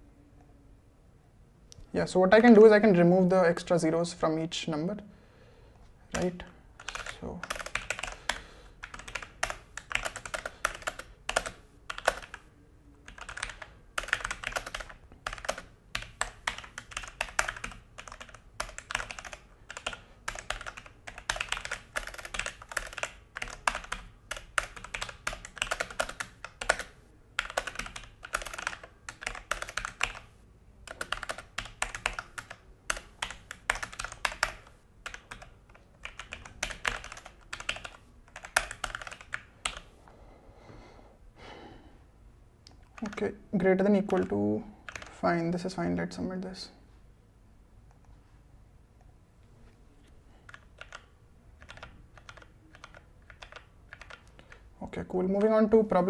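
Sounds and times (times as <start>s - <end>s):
mechanical keyboard typing: 6.1s - 39.9s, 42.8s - 45.2s, 50.4s - 55.8s.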